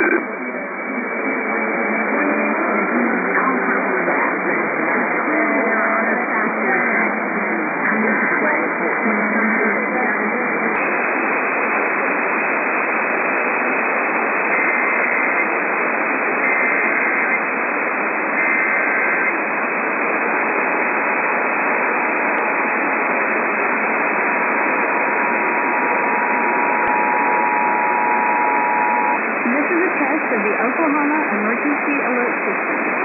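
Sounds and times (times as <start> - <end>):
radio static hiss: 0.0 - 33.0
data tone bursts: 24.8 - 30.0.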